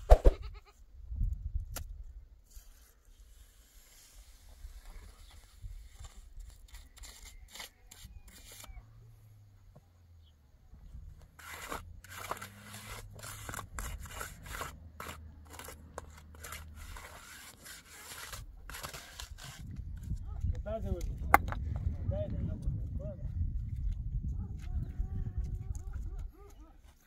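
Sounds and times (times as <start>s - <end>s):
stone scraping on stone: 11.4s - 19.8s.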